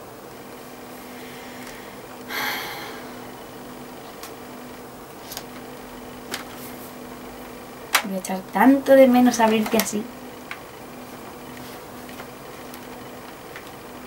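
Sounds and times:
low electrical hum: 0:00.0 - 0:14.0
breathy exhale: 0:01.0 - 0:03.5.

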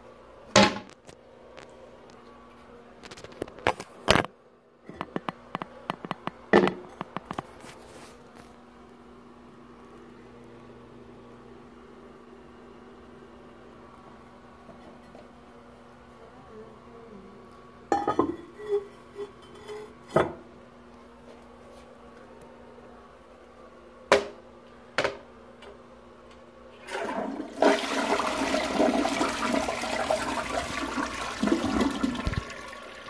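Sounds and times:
toilet flushing: 0:26.7 - 0:33.0.

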